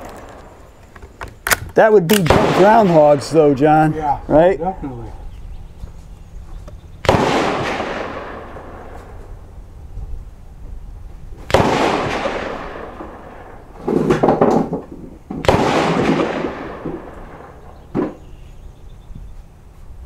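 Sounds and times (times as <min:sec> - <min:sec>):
rifle shots with rolling echo: 0:00.0 - 0:00.8, 0:01.4 - 0:03.9, 0:07.0 - 0:09.5, 0:11.4 - 0:14.2, 0:15.3 - 0:18.3.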